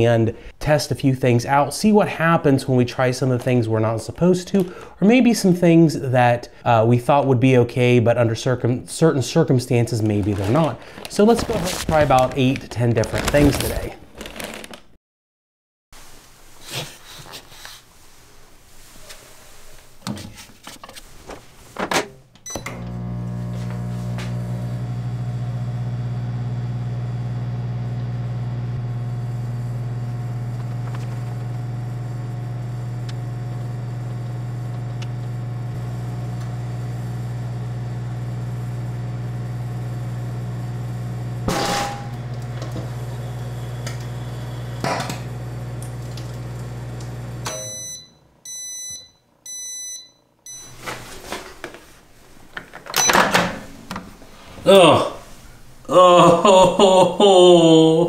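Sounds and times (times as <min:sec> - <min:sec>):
microwave beeps: 0:22.4 - 0:24.5, 0:41.8 - 0:44.9, 0:47.3 - 0:50.8, 0:53.0 - 0:53.4
microwave oven humming: 0:22.4 - 0:48.6.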